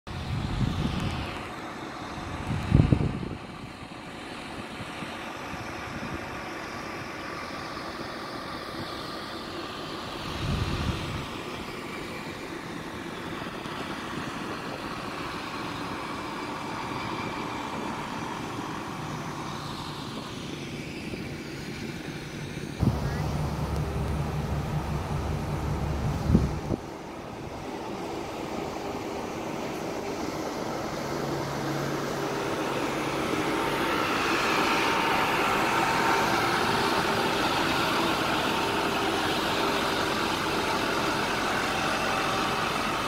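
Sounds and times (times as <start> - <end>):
diesel engine drone: 0.1 - 43.0
engine whine: 0.1 - 43.0
low thumps: 22.8 - 26.8.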